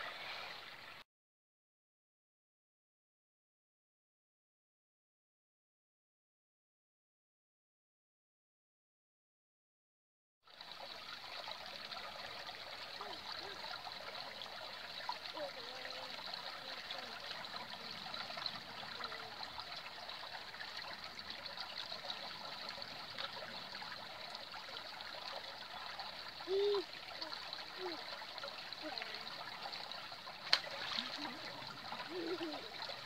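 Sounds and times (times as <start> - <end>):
stream babbling over stones: 0.0 - 1.0, 10.5 - 33.0.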